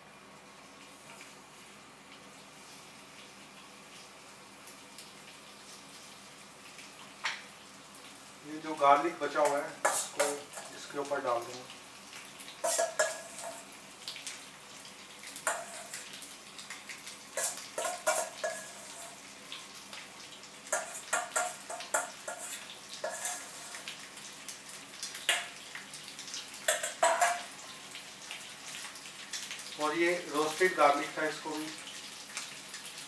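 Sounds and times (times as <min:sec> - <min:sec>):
faint sizzle: 0:00.0 - 0:33.0
metal spoon scraping steel bowl: 0:12.6 - 0:13.6, 0:22.3 - 0:23.8.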